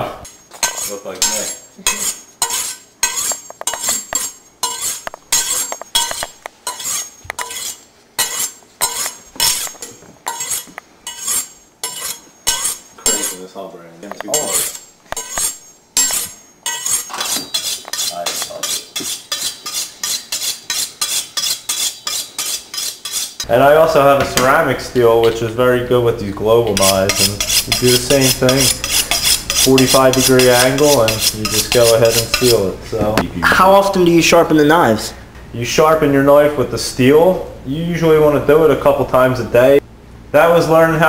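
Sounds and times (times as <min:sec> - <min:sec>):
knife scraping on honing steel: 0:00.2 - 0:13.5, 0:14.2 - 0:23.5, 0:26.7 - 0:32.7.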